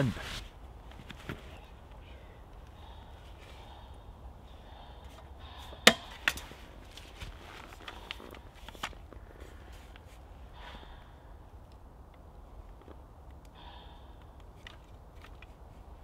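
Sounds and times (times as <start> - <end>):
camping gear clicks and knocks: 0.8 - 2.8, 5.0 - 10.3, 14.2 - 16.0.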